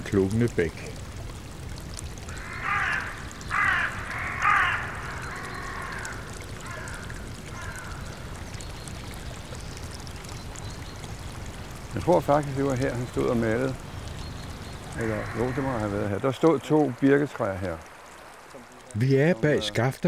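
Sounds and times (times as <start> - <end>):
crow cawing: 2.3 - 8.3, 15.0 - 16.2
brook rushing: 10.4 - 20.0.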